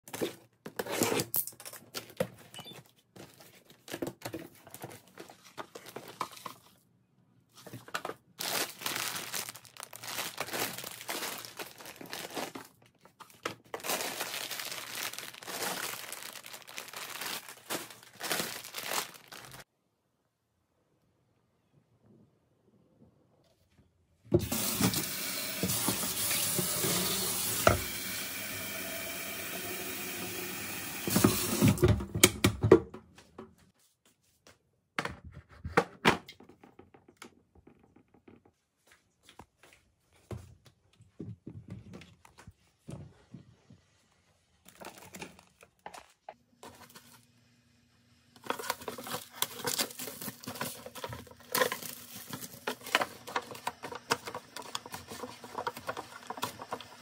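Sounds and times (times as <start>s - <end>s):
plastic wrap crinkling: 7.6s - 19.7s, 44.6s - 47.2s, 48.4s - 57.0s
tap water filling kettle: 24.4s - 32.0s.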